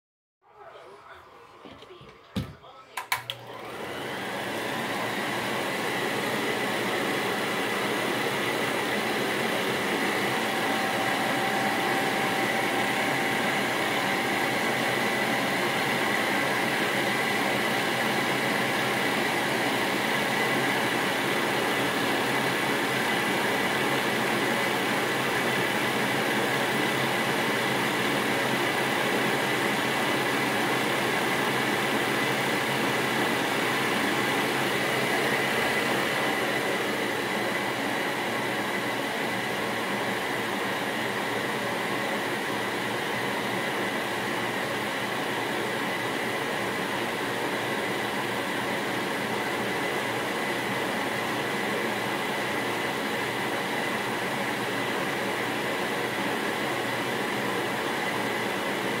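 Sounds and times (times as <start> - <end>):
film projector whirring: 3.0 - 59.0.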